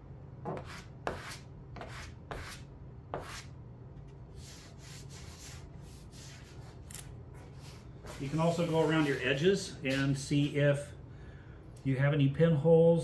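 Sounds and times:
soft rubbing: 4.3 - 10.5.

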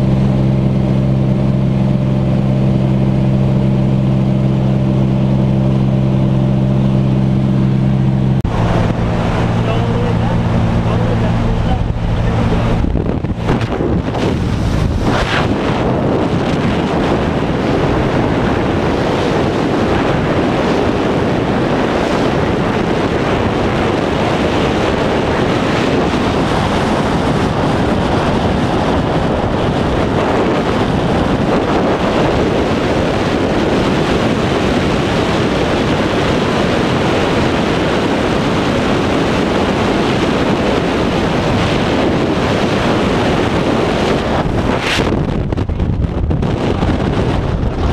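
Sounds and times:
wind rushing over microphone: 0.0 - 47.9.

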